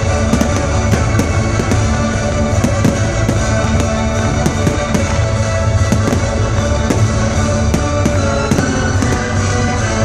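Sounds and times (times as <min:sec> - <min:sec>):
fireworks bangs and crackles: 0:00.0 - 0:10.0
music over loudspeakers: 0:00.0 - 0:10.0.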